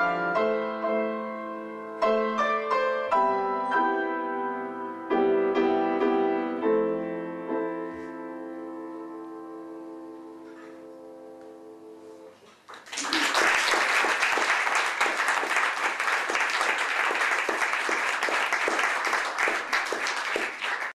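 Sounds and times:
held piano chord: 0.0 - 12.4
audience applauding: 12.5 - 20.9.

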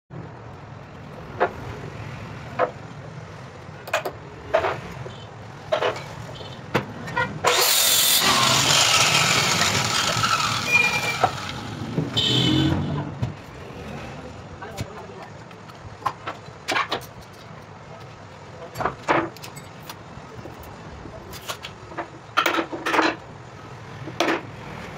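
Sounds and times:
circular saw cutting plywood: 7.4 - 12.2.

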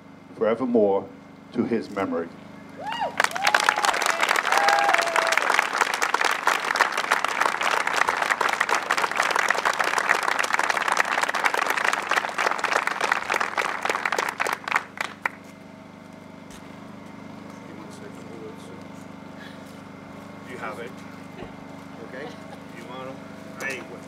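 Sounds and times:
audience applauding: 2.9 - 15.4.

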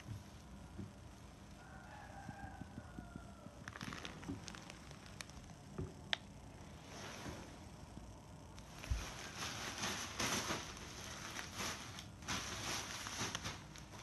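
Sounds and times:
fabric rustling: 8.7 - 14.0.

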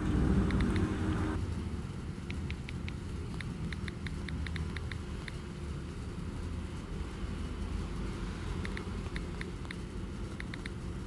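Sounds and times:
low background rumble: 0.0 - 3.9
phone keyboard clicks: 0.4 - 0.9.

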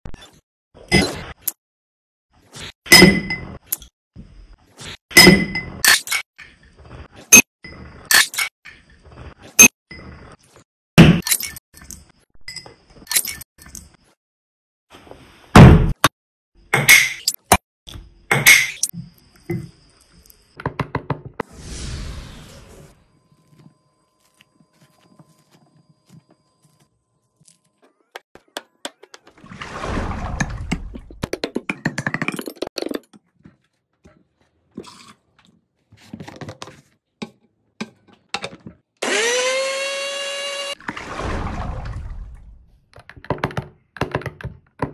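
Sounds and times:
plastic bottles knocking and clicking: 28.4 - 29.4, 31.0 - 33.6, 42.9 - 44.9
blender motor whining: 39.0 - 40.8.

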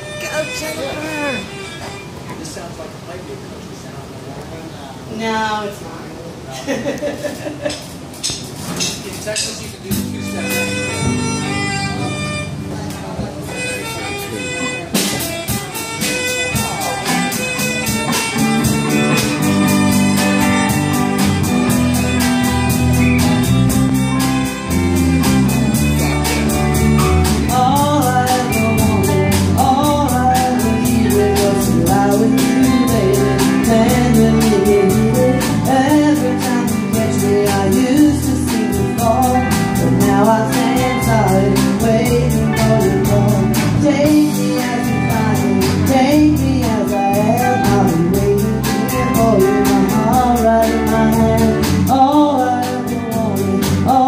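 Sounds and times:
live country band playing: 0.0 - 2.6, 7.8 - 54.0
electric violin: 0.0 - 2.7, 9.8 - 54.0
woman singing: 27.4 - 54.0.

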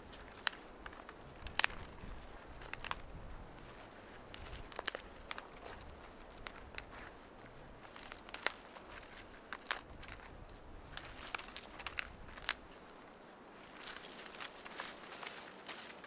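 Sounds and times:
brush rustling: 0.0 - 16.0
twigs snapping: 0.0 - 16.0.

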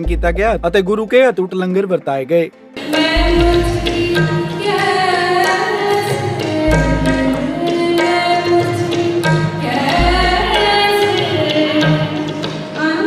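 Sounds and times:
deep bass drum booming: 0.0 - 1.1
tabla strokes: 2.8 - 13.0.

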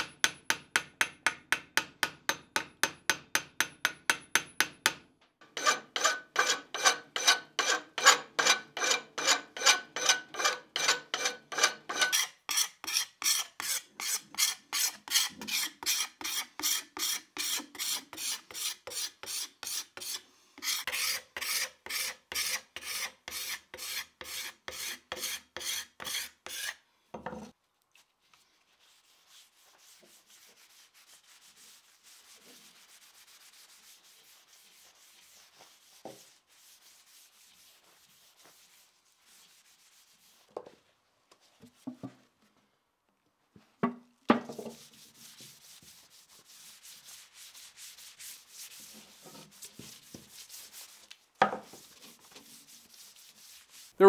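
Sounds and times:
hand file rasping on metal: 5.4 - 26.8.

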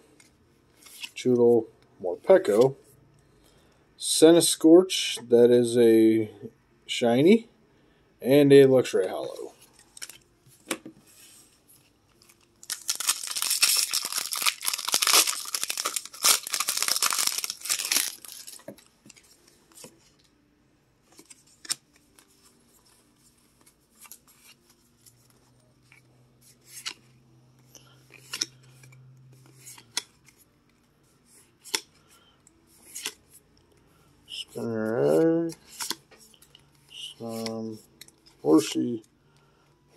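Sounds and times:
foil wrapper tearing and crinkling: 12.6 - 18.6
cards clicking and flicking: 28.1 - 28.6, 32.9 - 33.2.

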